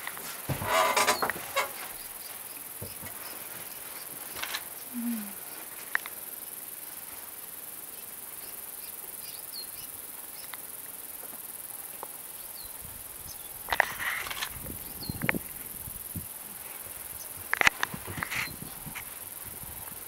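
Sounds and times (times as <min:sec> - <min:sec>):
insects chirring: 0:00.0 - 0:20.0
crackling clicks: 0:05.8 - 0:06.2, 0:17.5 - 0:19.1.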